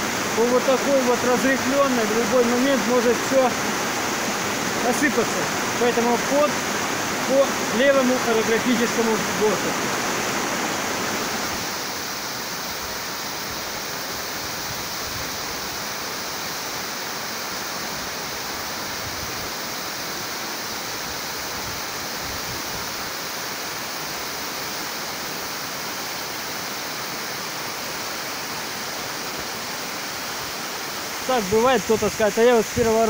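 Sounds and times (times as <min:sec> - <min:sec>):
waterfall splashing: 0:00.0 - 0:33.0.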